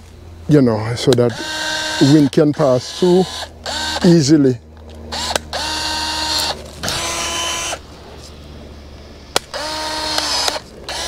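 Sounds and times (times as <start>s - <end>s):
power pruning tool motor: 1.0s - 11.0s
sharp click: 4.8s - 5.6s, 9.3s - 11.0s.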